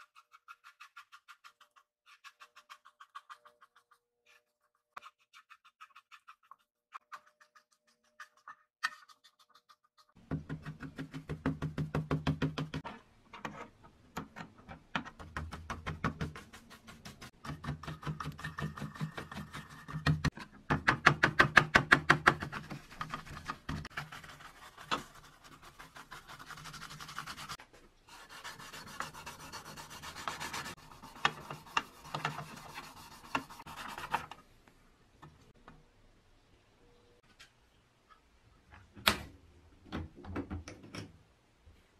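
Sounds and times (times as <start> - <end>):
metal scraper rasping paint: 0.0 - 11.1, 22.3 - 34.4
scouring pad scrubbing: 22.6 - 27.6.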